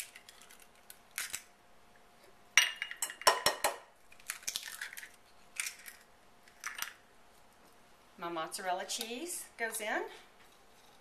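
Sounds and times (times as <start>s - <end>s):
eggshell clicks and crackles: 0.0s - 1.6s, 3.2s - 7.0s
egg cracking on glass bowl: 2.6s - 7.0s.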